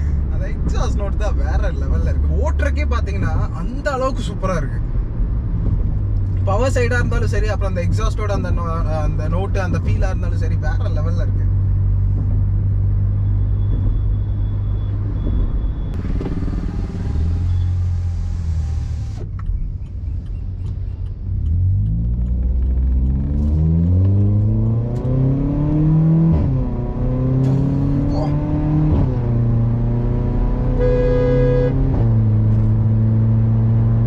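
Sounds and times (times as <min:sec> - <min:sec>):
turbocharged car engine revving: 0:16.0 - 0:19.3, 0:21.3 - 0:34.0.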